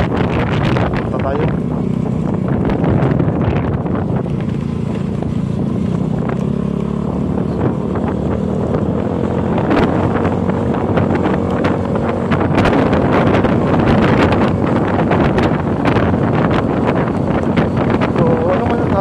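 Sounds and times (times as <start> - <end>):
motorcycle engine running: 0.0 - 19.0
wind buffeting microphone: 0.0 - 19.0.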